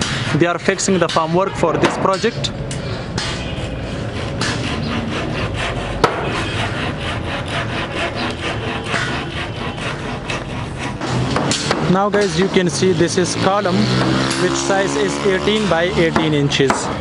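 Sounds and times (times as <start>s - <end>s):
hand saw cutting timber: 0.0s - 17.0s
sharp knock: 6.0s - 6.4s, 11.0s - 12.4s.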